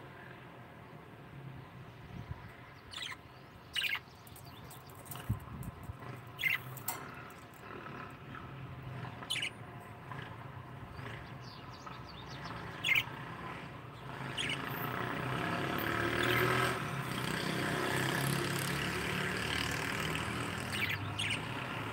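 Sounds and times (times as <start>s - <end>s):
budgerigars chirping: 2.8s - 4.8s, 6.4s - 6.8s, 9.1s - 9.6s, 11.0s - 13.2s, 14.0s - 15.0s, 20.5s - 21.7s.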